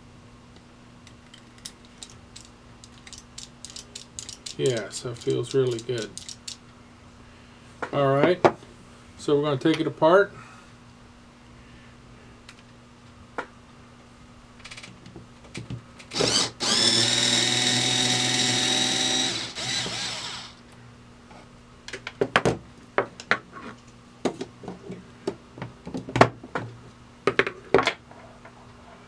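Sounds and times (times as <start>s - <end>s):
metal parts clicking and knocking: 1.3s - 6.6s
power drill running: 16.1s - 20.6s.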